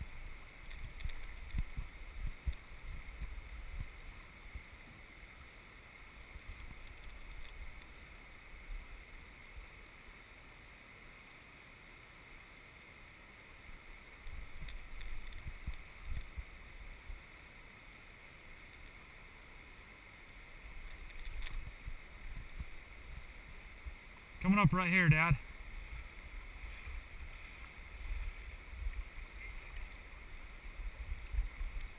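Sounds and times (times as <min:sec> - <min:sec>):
wind rumbling on microphone: 0:00.0 - 0:04.7, 0:14.3 - 0:17.2, 0:20.6 - 0:24.4, 0:25.4 - 0:31.9
river current rushing: 0:00.0 - 0:31.9.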